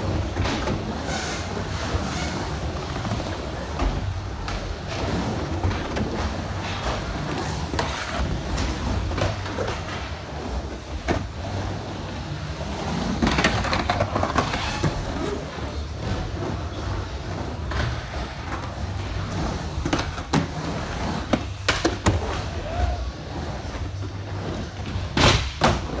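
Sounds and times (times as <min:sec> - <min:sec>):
skateboard wheels rolling: 0:00.0 - 0:26.0
skateboard clacks: 0:21.2 - 0:23.0.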